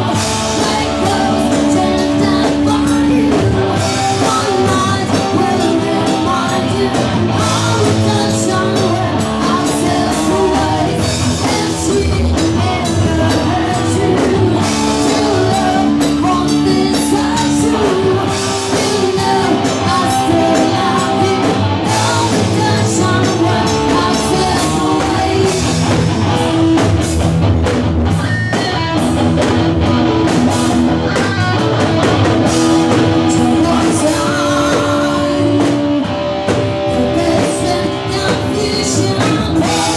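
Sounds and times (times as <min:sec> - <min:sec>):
drums: 0:00.0 - 0:39.9
electric guitar: 0:00.0 - 0:39.9
woman singing into microphone: 0:00.1 - 0:25.9, 0:33.1 - 0:36.1, 0:36.8 - 0:39.9.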